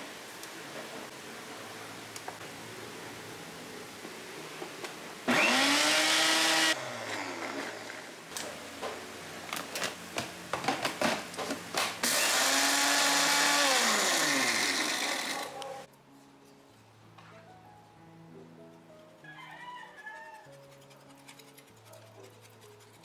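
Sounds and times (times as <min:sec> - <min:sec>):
electric blender motor running: 0:05.3 - 0:08.1, 0:12.0 - 0:15.6.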